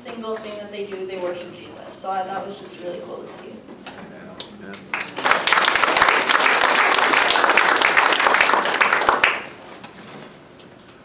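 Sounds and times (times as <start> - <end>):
children applauding: 4.8 - 9.7.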